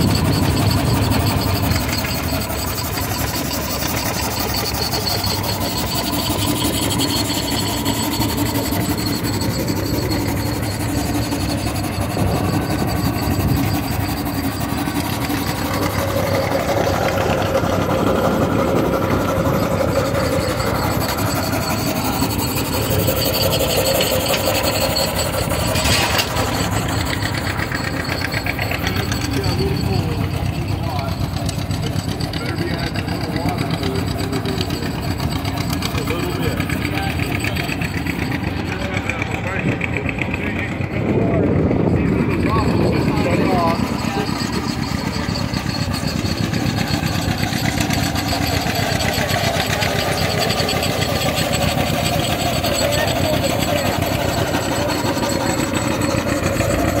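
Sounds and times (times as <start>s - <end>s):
steady humming tone: 0.0s - 57.0s
steam traction engine running: 0.0s - 57.0s.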